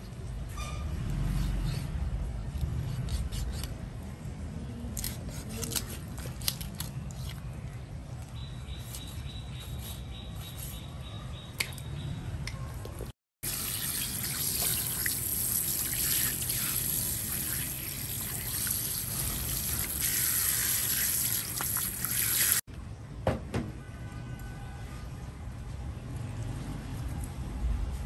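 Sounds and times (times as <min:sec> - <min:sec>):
tap water running: 0:13.4 - 0:22.6.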